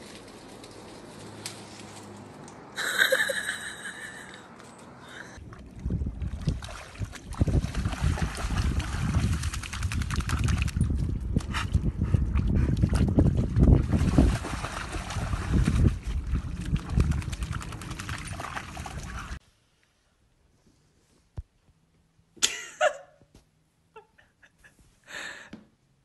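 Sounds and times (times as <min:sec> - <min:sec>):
dog splashing in muddy puddle: 0:05.5 - 0:11.1, 0:12.8 - 0:19.4.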